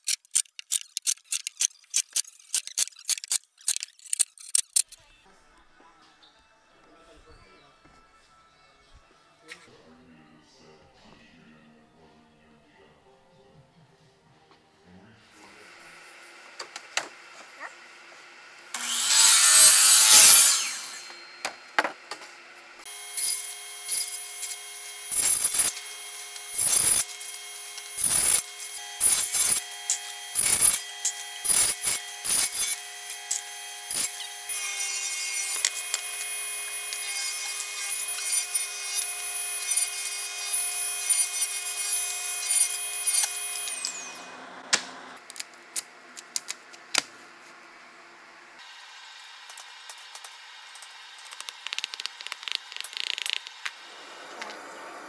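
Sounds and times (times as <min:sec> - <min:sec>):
saw cutting through wood: 0:17.2 - 0:45.2
table saw motor whine: 0:17.2 - 0:45.2, 0:53.7 - 0:55.0.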